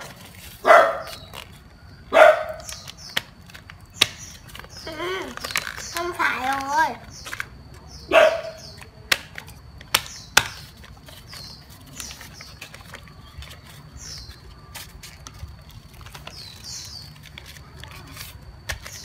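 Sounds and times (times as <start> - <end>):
paper rustling while folded: 0.0 - 1.9, 2.6 - 7.4, 8.8 - 19.0.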